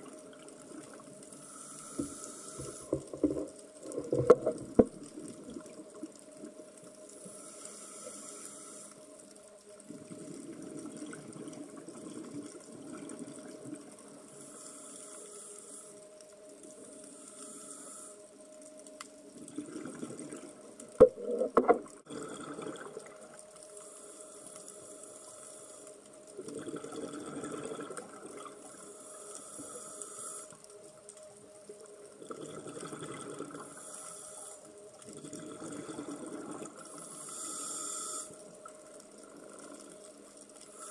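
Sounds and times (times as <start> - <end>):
faint steady hum: 0.0 - 40.9
diver breathing through regulator: 1.4 - 3.4, 7.2 - 9.0, 14.4 - 16.0, 17.1 - 18.3, 28.8 - 30.6, 36.9 - 38.4.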